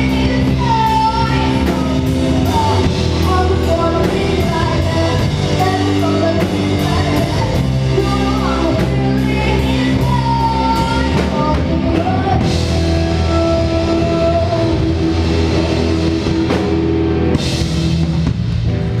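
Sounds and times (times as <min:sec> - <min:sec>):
live rock band playing: 0:00.0 - 0:19.0.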